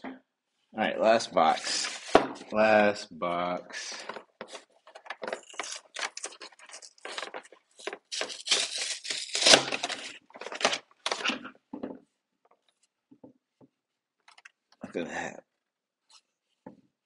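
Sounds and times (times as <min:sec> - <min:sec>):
packaging tearing and crinkling: 0:05.1 - 0:11.4.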